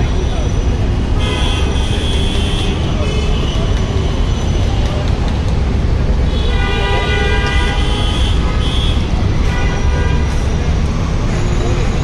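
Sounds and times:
street traffic rumble: 0.0s - 12.0s
vehicle horn: 1.2s - 3.7s, 6.3s - 10.4s.

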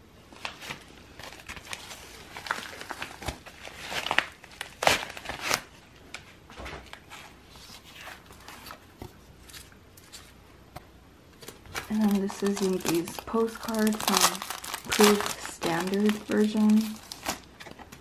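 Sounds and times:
packaging crinkling: 0.3s - 10.4s, 11.3s - 18.0s.

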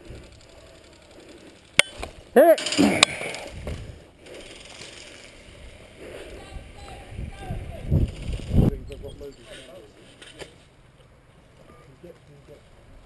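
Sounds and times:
person shouting: 2.4s - 2.9s.

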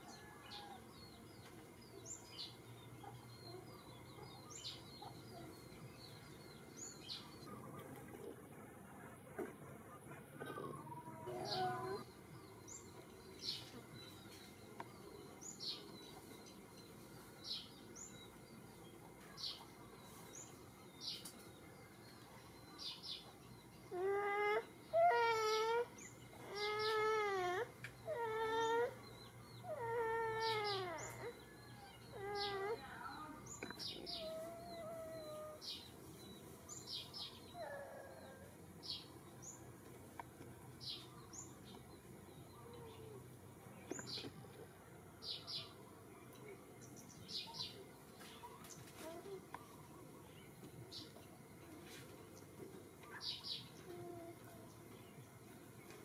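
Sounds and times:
small birds chirping: 0.0s - 56.0s
baby monkey crying calls: 23.9s - 32.9s.

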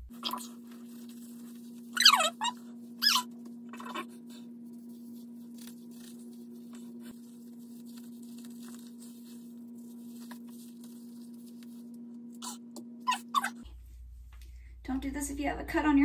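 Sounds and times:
steady low hum: 0.0s - 16.0s
wet rustling of hair mixture: 0.4s - 2.0s, 4.2s - 12.1s.

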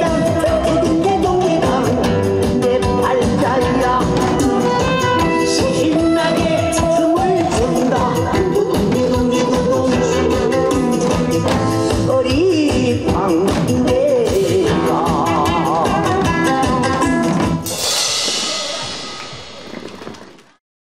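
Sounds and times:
pop song with singer: 0.0s - 17.6s
drum and cymbal ensemble: 12.7s - 20.1s
cymbal crash ringing: 17.7s - 19.8s.

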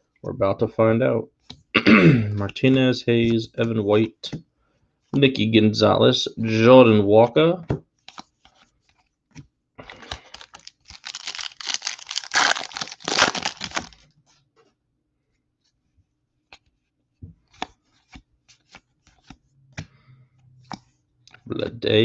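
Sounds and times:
wrapper tearing and crinkling: 10.1s - 14.0s.

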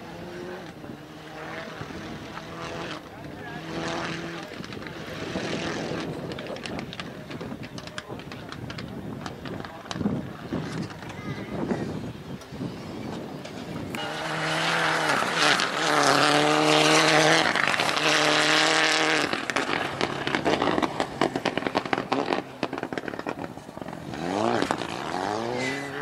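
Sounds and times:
rally car engine revving: 0.0s - 11.1s, 13.1s - 26.0s
exhaust pops and crackles: 0.0s - 26.0s.

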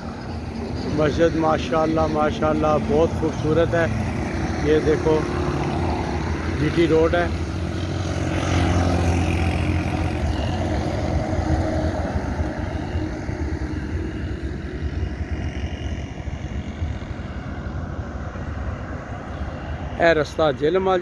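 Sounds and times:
pickup truck driving past: 0.0s - 15.9s.

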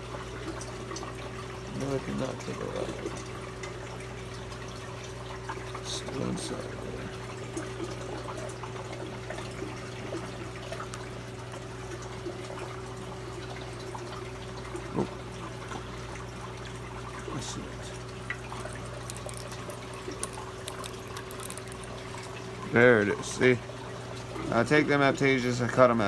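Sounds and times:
aquarium water trickling: 0.0s - 26.0s
pump humming: 0.0s - 26.0s
knife clicks and scrapes: 19.0s - 22.0s.

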